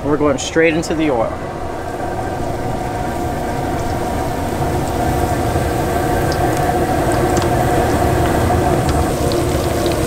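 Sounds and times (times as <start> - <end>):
gas burner rumble: 0.0 - 10.0
fish frying in oil: 2.4 - 10.0.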